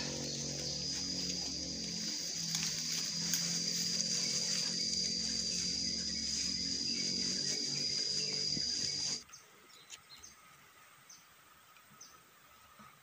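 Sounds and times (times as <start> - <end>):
high-pitched insect drone: 0.0 - 9.2.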